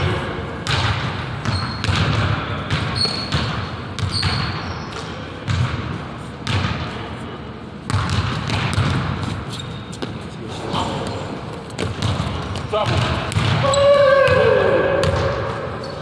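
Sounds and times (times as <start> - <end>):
sneaker squeaks: 1.4 - 5.6, 7.9 - 16.0
basketball bouncing on hardwood: 11.8 - 13.6.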